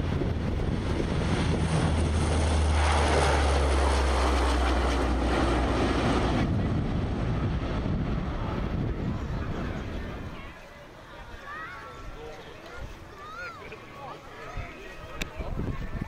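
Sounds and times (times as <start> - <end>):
turboprop aircraft passing low: 0.0 - 10.6.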